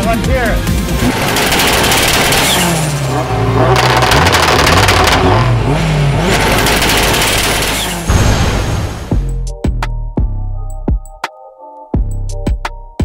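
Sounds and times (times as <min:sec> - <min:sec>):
car engine revving: 0:00.6 - 0:08.1.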